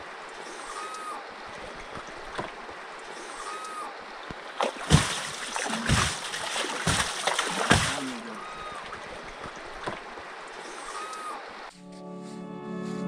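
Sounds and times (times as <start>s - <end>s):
water trickling: 0.0s - 10.9s
water splashes: 0.0s - 11.7s
whistled bird call: 0.5s - 1.2s, 3.2s - 4.0s, 10.6s - 11.6s.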